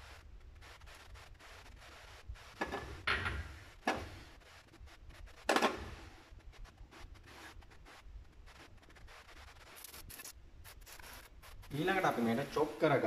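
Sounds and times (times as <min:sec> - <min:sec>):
faint ticks and crackles: 0:03.9 - 0:12.7.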